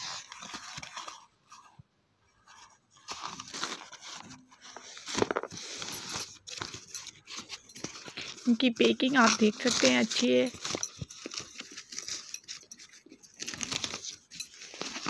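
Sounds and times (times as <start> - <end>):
packaging rustling and crinkling: 0.0 - 1.8, 2.4 - 15.0
paper ripping: 3.0 - 12.7, 13.4 - 15.0.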